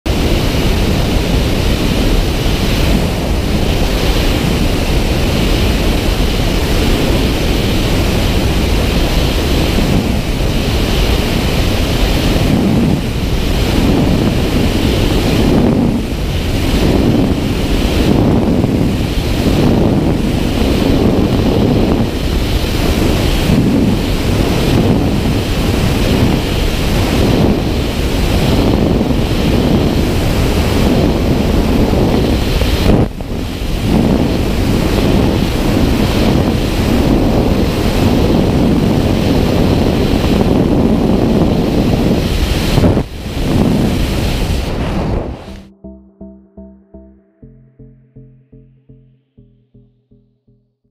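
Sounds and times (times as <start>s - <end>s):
wind rushing over microphone: 0.0s - 47.1s
low wind buffeting: 0.0s - 49.0s.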